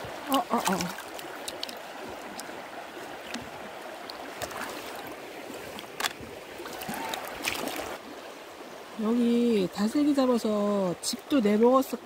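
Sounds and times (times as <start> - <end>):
sharp water splashes: 0.0 - 8.0
creek water running: 0.0 - 12.0.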